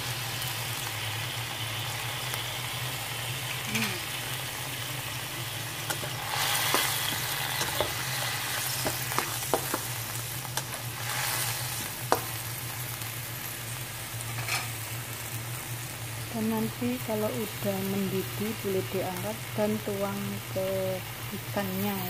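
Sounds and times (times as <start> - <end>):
sizzling and bubbling in a wok: 0.0 - 22.0.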